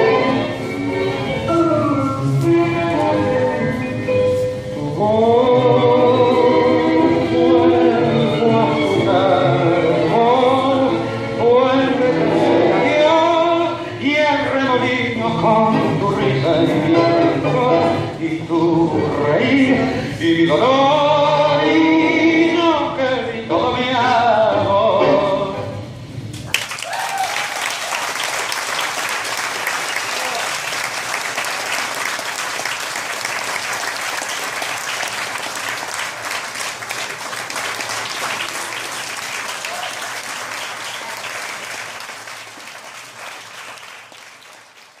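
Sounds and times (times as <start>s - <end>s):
person singing with orchestra: 4.7s - 25.9s
audience applauding: 26.5s - 45.0s.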